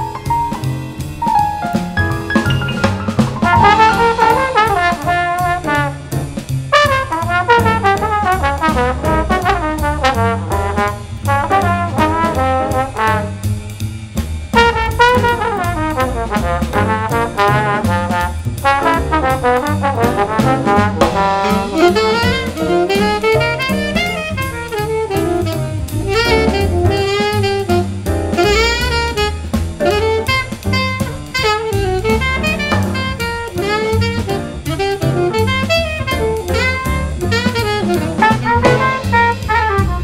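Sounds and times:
drums: 0.0 - 40.0
jazz trombone solo: 0.0 - 40.0
piano: 0.0 - 40.0
upright bass: 0.0 - 40.0
alto saxophone: 3.4 - 13.5, 14.6 - 40.0.

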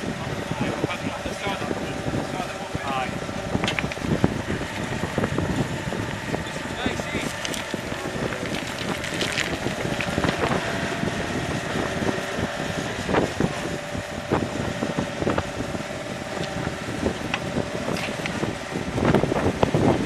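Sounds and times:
excavator engine running: 0.0 - 20.0
wind buffeting microphone: 0.0 - 20.0
stones knocking and clattering: 3.6 - 4.0, 7.2 - 10.6, 17.3 - 18.4.

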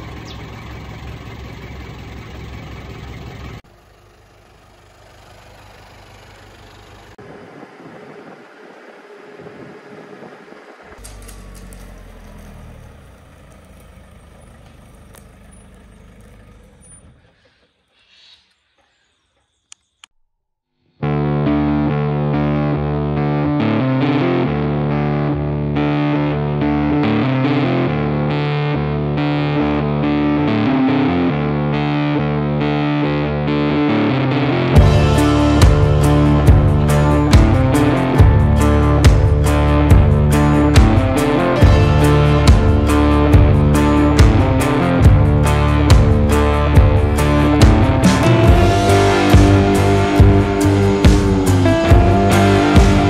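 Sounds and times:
truck engine running: 0.0 - 17.6, 31.6 - 53.0
driving noise rush: 7.2 - 12.1, 34.5 - 53.0
distorted electric guitar chords: 21.0 - 53.0.

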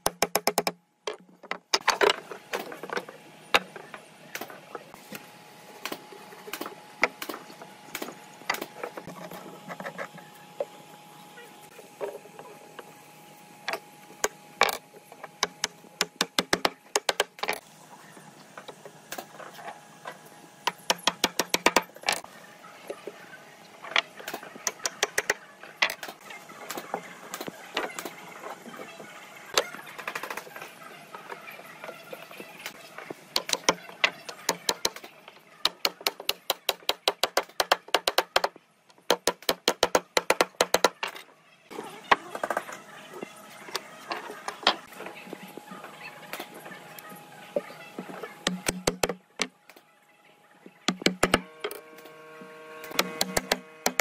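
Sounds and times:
mallet knocking on wood: 50.9 - 51.5.

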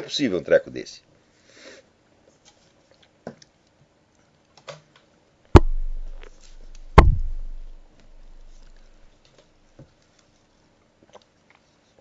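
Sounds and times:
loud knocks on a desk: 5.6 - 6.3, 6.9 - 7.7
low rumble: 5.6 - 8.7.

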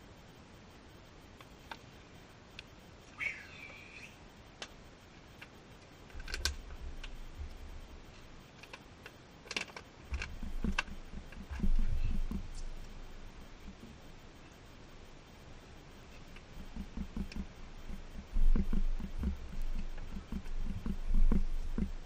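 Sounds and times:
bird chirp: 3.0 - 4.3
low rumble: 10.1 - 22.0.

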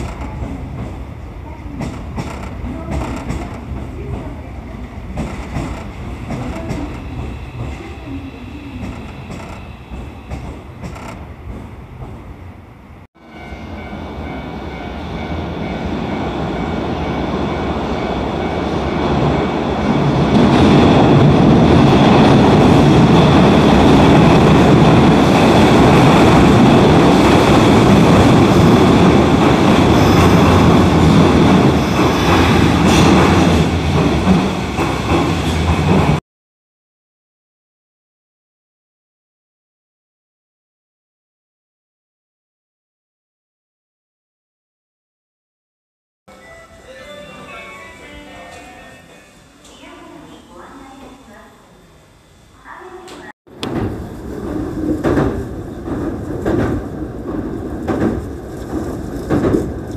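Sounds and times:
train wheel clatter: 0.0 - 1.0, 1.8 - 4.4, 5.0 - 8.1, 8.7 - 12.2, 23.8 - 36.2, 53.2 - 59.9
train running on track: 0.0 - 36.2, 46.3 - 59.9.

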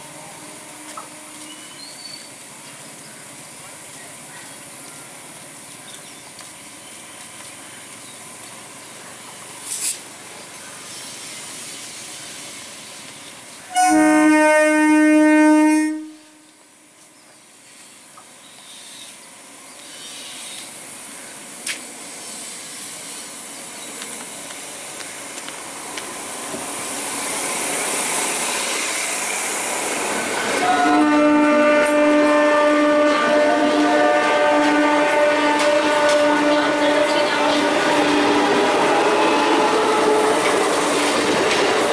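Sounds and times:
hiss: 6.5 - 13.7, 17.6 - 30.6
train horn blasts: 13.7 - 16.6, 30.6 - 40.5.

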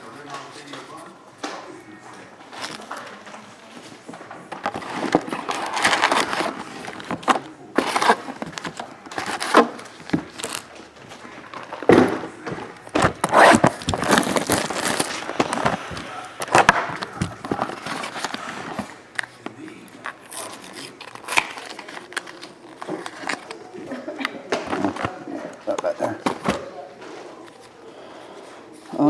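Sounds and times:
cardboard packs scraping and rustling: 4.6 - 10.7, 13.0 - 16.2.

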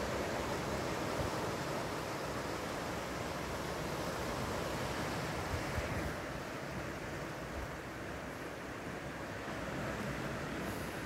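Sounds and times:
surf washing against rocks: 0.0 - 11.0
wind gusting on microphone: 4.2 - 7.8.

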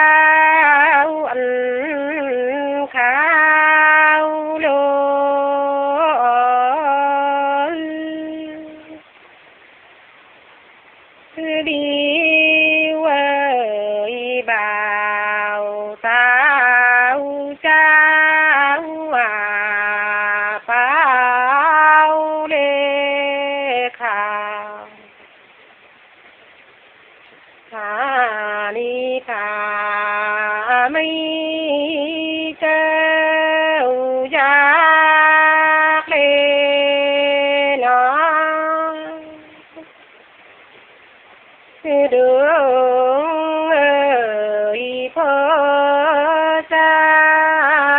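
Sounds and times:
person singing folk song: 0.0 - 9.2, 11.3 - 25.2, 27.7 - 40.0, 41.8 - 47.9.

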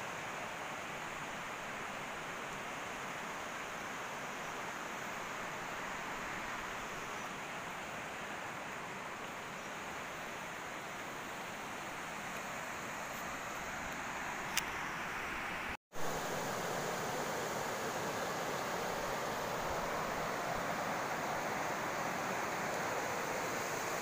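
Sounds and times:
river flowing over stones: 0.0 - 24.0.

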